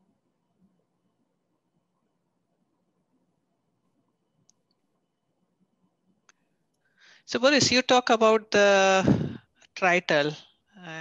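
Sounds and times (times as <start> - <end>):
faint click: 4.4 - 4.8.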